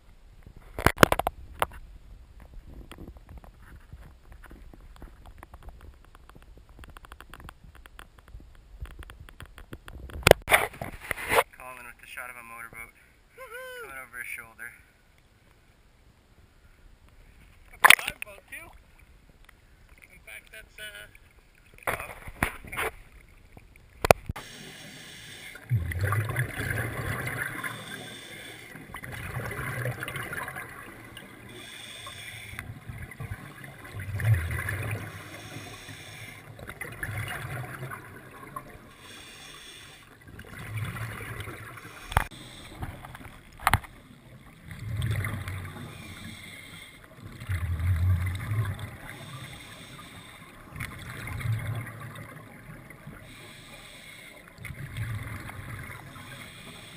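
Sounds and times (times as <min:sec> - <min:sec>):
underwater exhaust bubbles gurgling: 0:21.3 - 0:56.9.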